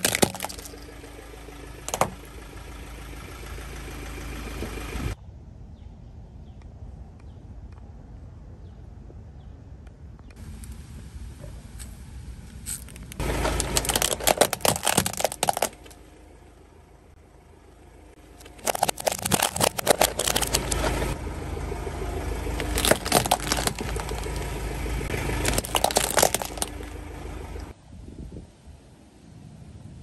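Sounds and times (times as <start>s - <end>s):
plastic toys cracking and crunching: 0.0s - 1.0s, 1.8s - 2.2s, 12.6s - 16.0s, 18.4s - 21.2s, 22.6s - 24.5s, 25.2s - 26.9s
slowly moving car rumble: 0.0s - 30.0s.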